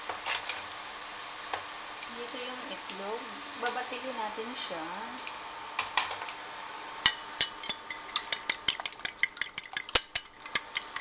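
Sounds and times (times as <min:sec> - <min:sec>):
fork clinking against bowl: 0:07.1 - 0:11.0.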